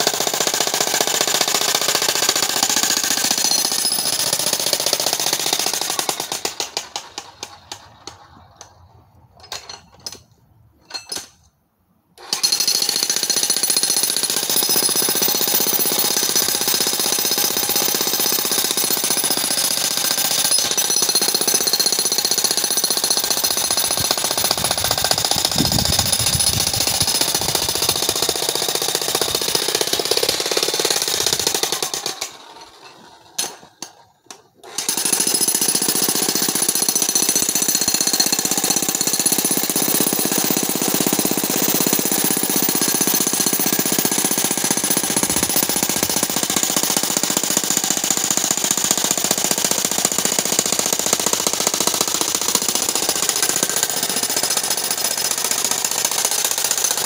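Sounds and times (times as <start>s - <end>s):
demolition hammer pounding rock: 12.5s - 32.1s, 34.8s - 57.0s.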